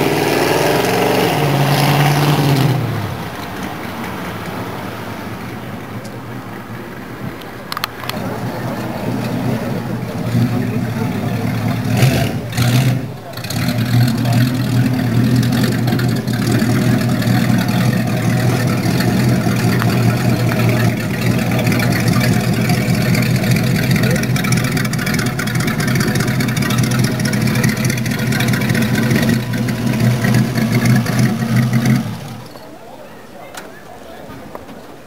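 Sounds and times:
engine exhaust running: 0:08.0 - 0:32.5.

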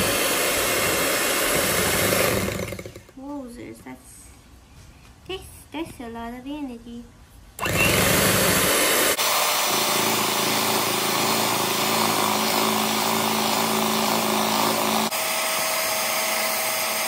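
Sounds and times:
electric hand mixer whirring: 0:00.0 - 0:03.1, 0:07.6 - 0:17.0.

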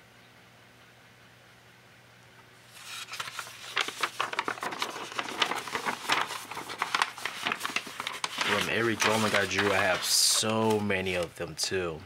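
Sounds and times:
paper pages rustling and crinkling: 0:02.7 - 0:11.4.

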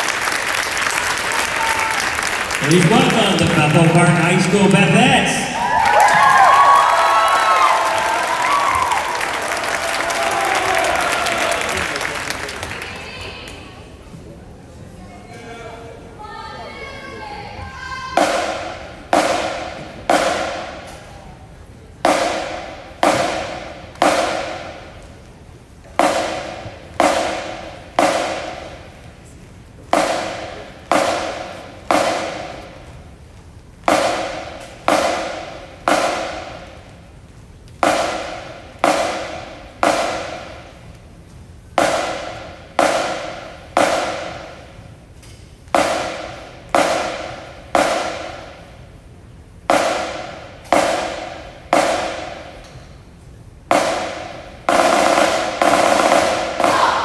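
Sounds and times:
drum beating in echoing hall: 0:00.0 - 0:13.5, 0:17.4 - 0:57.0.

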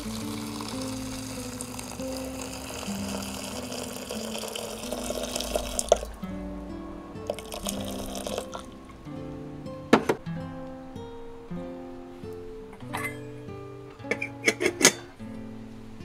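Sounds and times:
water pouring into kettle: 0:00.0 - 0:06.2, 0:07.3 - 0:08.7
music with plucked notes: 0:00.0 - 0:16.0.

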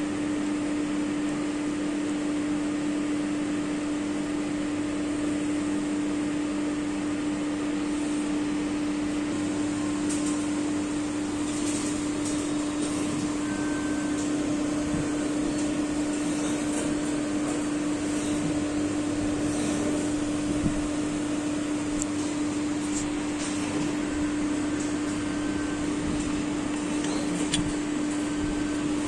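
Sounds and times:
machine hum with low tone: 0:00.0 - 0:29.0
faint short beep: 0:13.4 - 0:14.2.

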